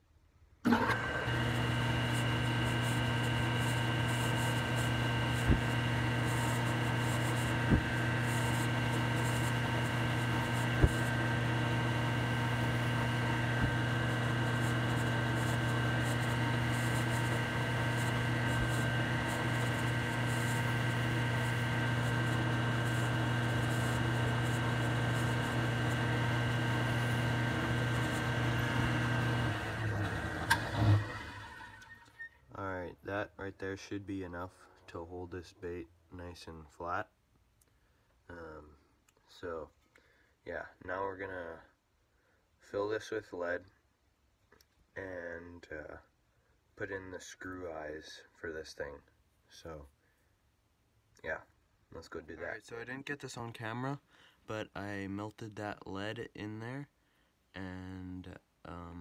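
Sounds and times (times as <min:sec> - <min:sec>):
drill press motor running: 0:00.7 - 0:32.2.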